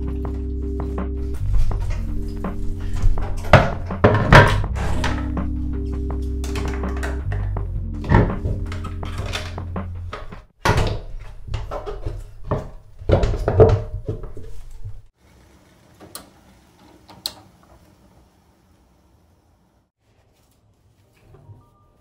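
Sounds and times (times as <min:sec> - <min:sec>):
background music: 0:00.0 - 0:10.5
household things knocking and clunking: 0:01.2 - 0:15.1.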